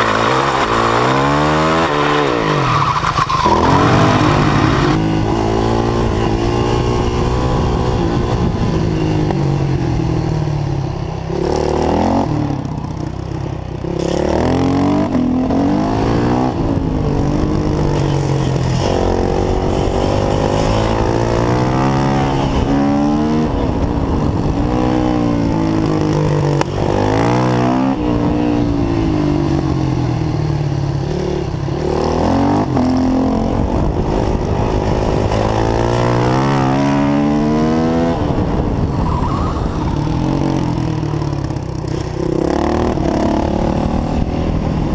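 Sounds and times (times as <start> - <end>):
motorcycle engine revving: 0.0 - 10.4, 11.2 - 44.9.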